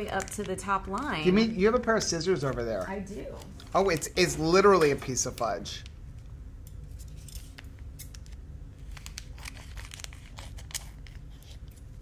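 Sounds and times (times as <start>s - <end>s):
wrapper crinkling: 0.0s - 1.1s, 7.0s - 12.0s.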